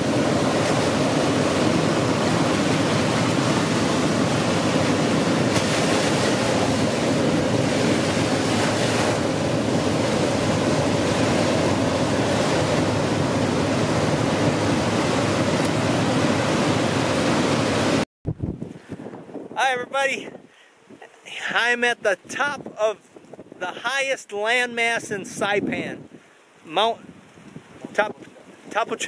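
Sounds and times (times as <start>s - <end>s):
ocean surf breaking: 0.0s - 18.1s.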